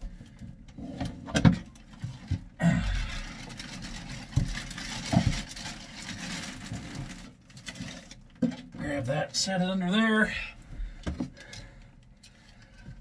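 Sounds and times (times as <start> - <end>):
plastic bag rustling and crinkling: 1.7 - 8.8.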